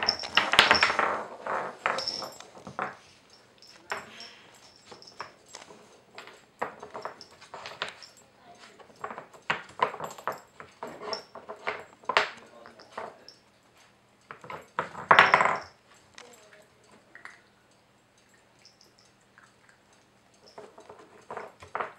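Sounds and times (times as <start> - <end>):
wooden puzzle pieces knocking: 0.0 - 3.0, 8.8 - 13.1.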